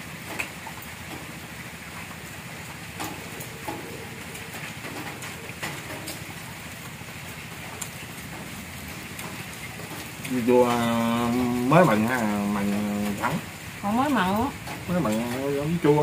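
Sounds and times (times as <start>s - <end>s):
clicks and rustles of people eating: 3.0s - 6.4s, 7.7s - 13.3s.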